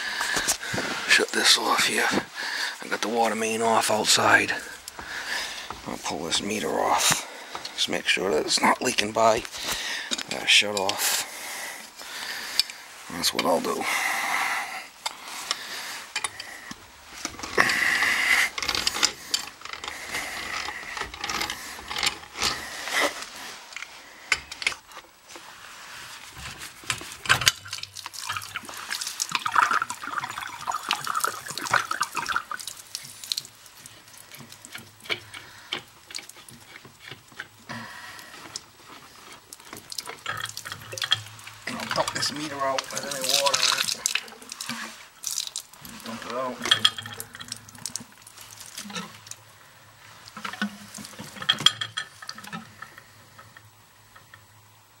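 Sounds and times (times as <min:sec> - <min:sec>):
water dripping into bucket: 0:02.4 - 0:07.8, 0:27.0 - 0:54.7
metal fittings clinking: 0:15.5 - 0:24.9, 0:38.4 - 0:49.4, 0:50.3 - 0:54.5.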